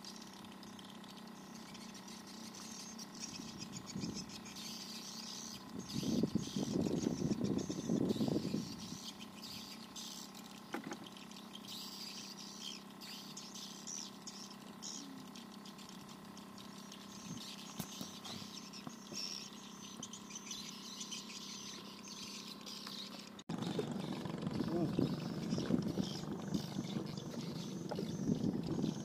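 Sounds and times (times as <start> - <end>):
high-pitched chirping: 0.0 - 10.4, 11.2 - 29.0
faint steady hum: 0.0 - 29.0
low muffled rumble: 23.5 - 29.0.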